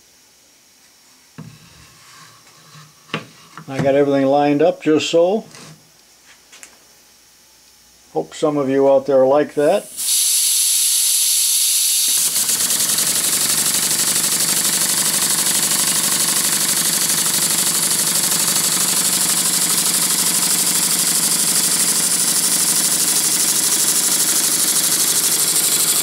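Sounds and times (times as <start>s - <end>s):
air hiss: 9.8s - 12.4s
model steam engine exhaust beat: 9.8s - 26.0s.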